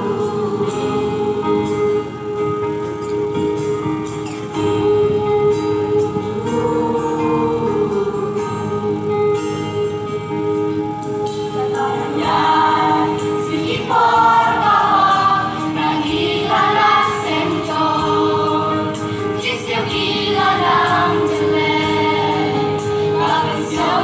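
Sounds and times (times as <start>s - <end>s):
choir singing a hymn over loudspeakers: 0.0s - 24.0s.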